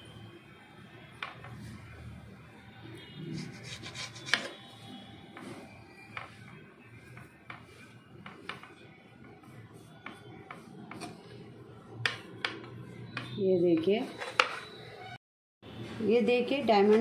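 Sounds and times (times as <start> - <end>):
dough scraping off metal plate: 3.3 - 4.6.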